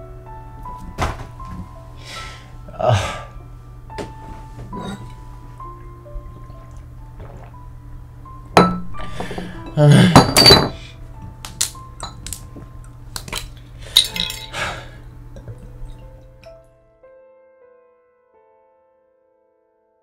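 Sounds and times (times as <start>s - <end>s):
soft music: 0.0s - 20.0s
glass bottles clinking: 8.6s - 10.8s, 12.0s - 12.4s, 13.3s - 14.6s.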